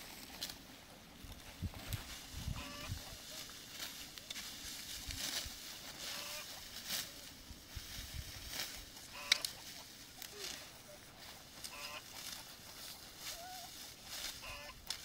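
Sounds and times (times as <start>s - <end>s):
poultry calling: 2.4s - 3.5s, 6.0s - 6.7s, 8.9s - 14.9s.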